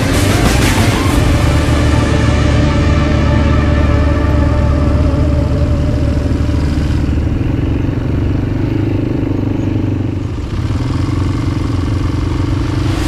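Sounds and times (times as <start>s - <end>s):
quad bike engine rumbling: 0.0s - 13.0s.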